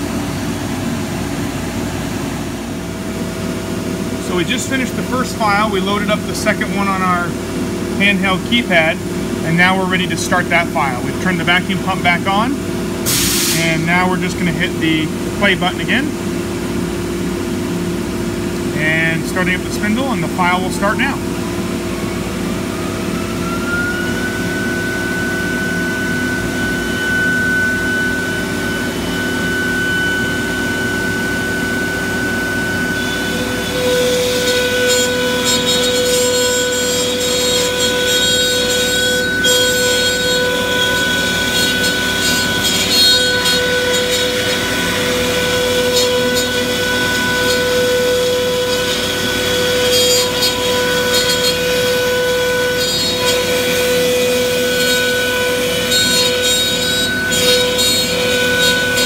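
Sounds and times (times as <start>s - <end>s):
vacuum pump hum: 0.0s - 59.0s
router spindle whining: 18.6s - 59.0s
router bit cutting plywood: 22.3s - 59.0s.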